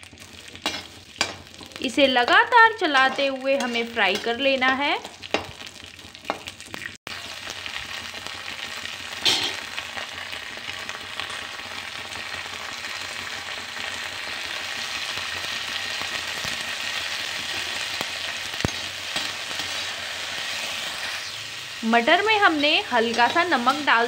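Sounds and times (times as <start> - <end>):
peas sizzling in oil: 0.0 - 24.0
spatula scraping pan: 18.6 - 21.6, 22.9 - 24.0.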